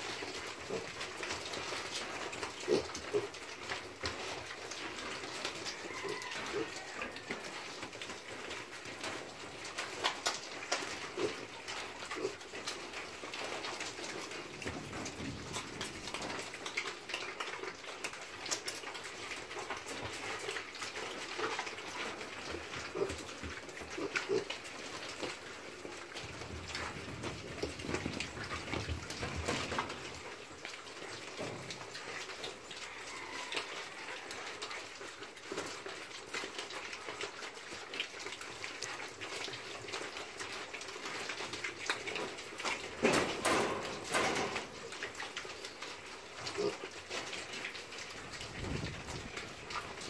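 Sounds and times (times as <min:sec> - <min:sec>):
piglets chewing and scuffling: 0:00.0 - 0:50.0
piglets grunting: 0:02.5 - 0:03.4, 0:11.1 - 0:12.5, 0:22.8 - 0:24.8, 0:46.4 - 0:47.0.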